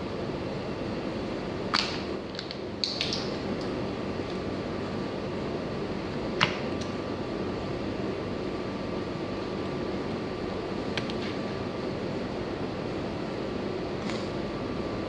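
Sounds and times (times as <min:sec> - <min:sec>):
room hum: 0:00.0 - 0:15.0.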